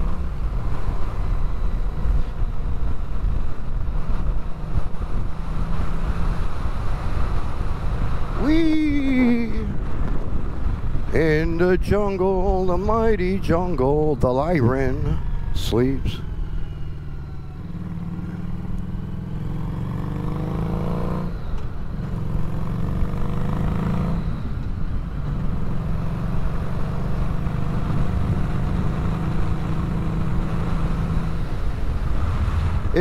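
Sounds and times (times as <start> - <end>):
motorcycle engine accelerating: 0.0 - 11.4, 12.4 - 33.0
wind rush on microphone: 0.0 - 16.2, 27.9 - 33.0.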